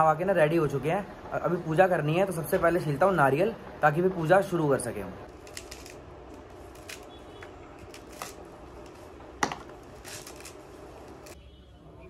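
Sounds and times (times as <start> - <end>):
coconut husk tearing and crackling: 5.2 - 11.4.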